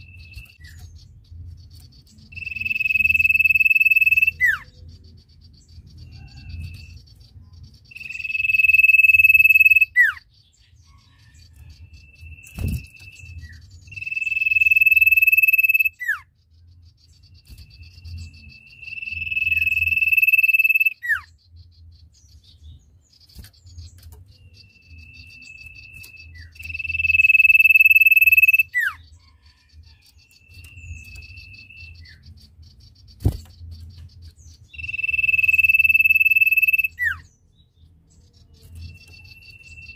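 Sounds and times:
bird whistling: 0:02.3 - 0:04.7, 0:07.9 - 0:10.2, 0:12.2 - 0:16.2, 0:17.8 - 0:21.3, 0:24.4 - 0:29.0, 0:34.7 - 0:37.3.

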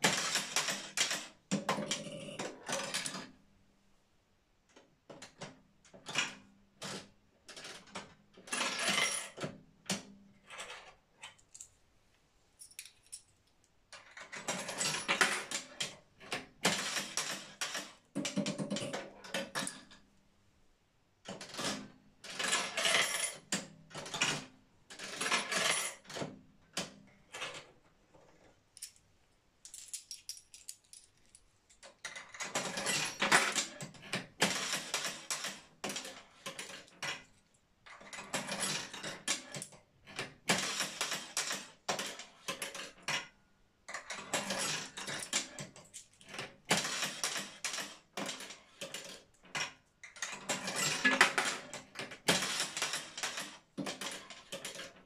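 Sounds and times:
slot machine mechanism clattering: 0:00.0 - 0:03.2, 0:16.7 - 0:19.0, 0:21.5 - 0:23.4, 0:34.4 - 0:36.8, 0:40.5 - 0:42.7, 0:46.7 - 0:49.2, 0:50.1 - 0:55.0
coins dropping in slot machine: 0:22.3 - 0:23.4, 0:52.3 - 0:54.8
slot machine lever: 0:46.7 - 0:49.2, 0:50.1 - 0:54.9.

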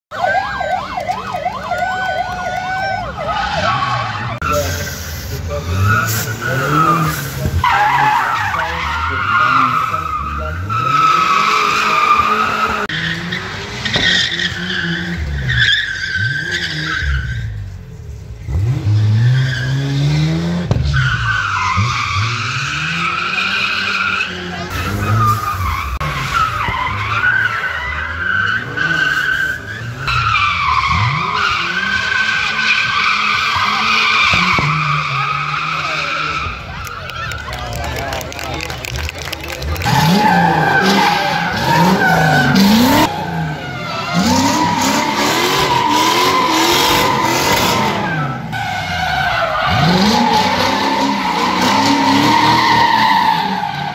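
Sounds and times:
car engines revving: 0:00.1 - 0:53.9
tyres squealing: 0:02.0 - 0:17.6.

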